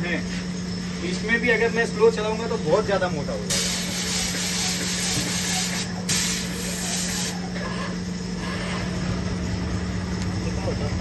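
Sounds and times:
steady low hum: 0:00.0 - 0:11.0
putty sprayer gun hissing: 0:03.5 - 0:07.5.

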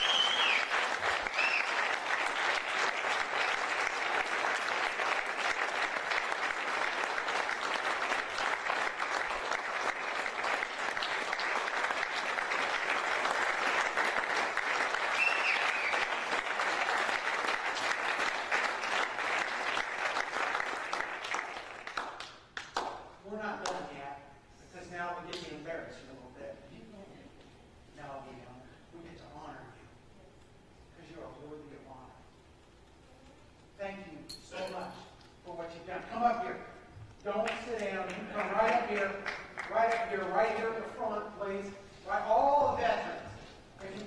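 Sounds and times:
congregation applauding: 0:00.0 - 0:23.8, 0:37.3 - 0:41.5.

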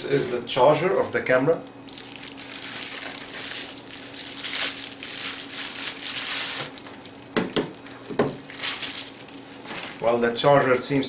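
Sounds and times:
bubble wrap crinkling: 0:01.8 - 0:10.1.

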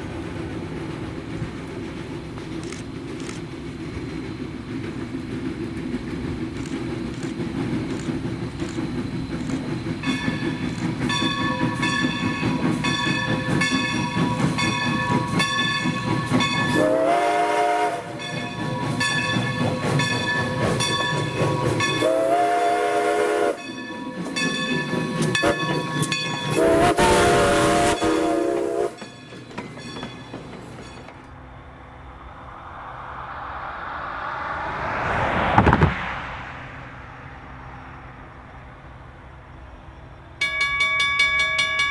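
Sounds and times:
steam locomotive rumbling: 0:00.0 - 0:41.9
locomotive bell ringing: 0:10.0 - 0:16.8, 0:18.1 - 0:22.1, 0:23.5 - 0:26.9, 0:27.8 - 0:31.4, 0:40.4 - 0:41.9
steam whistle blasts: 0:16.6 - 0:18.5, 0:21.8 - 0:23.8, 0:26.5 - 0:29.1.

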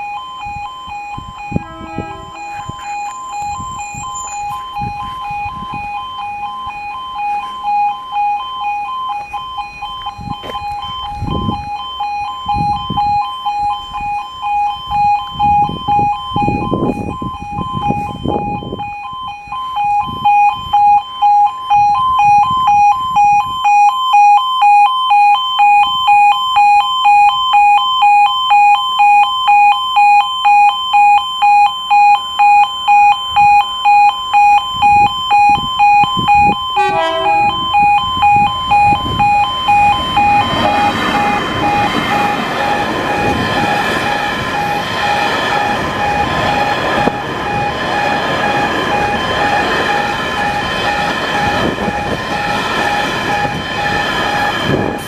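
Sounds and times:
level crossing alarm beeping: 0:00.0 - 0:55.0
freight train rumble and clatter: 0:01.2 - 0:06.6, 0:35.5 - 0:55.0.

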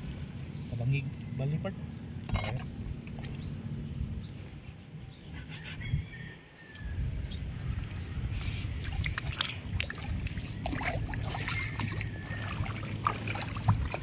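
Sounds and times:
seawater sloshing and splashing: 0:08.6 - 0:14.0.

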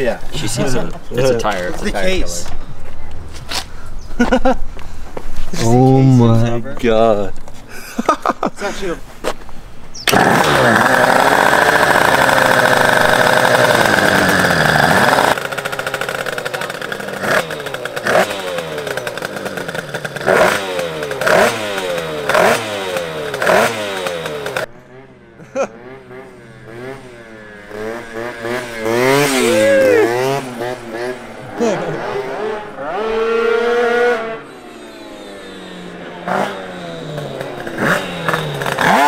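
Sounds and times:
distant scooter pulling away: 0:10.0 - 0:39.0
two-stroke scooter engine revving: 0:10.0 - 0:39.0.

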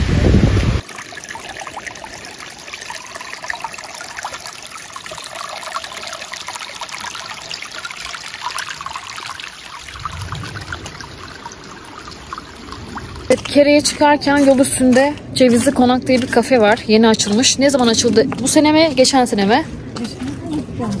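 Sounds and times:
stream trickling over stones: 0:00.8 - 0:20.7
loud low rumble: 0:10.0 - 0:11.3.

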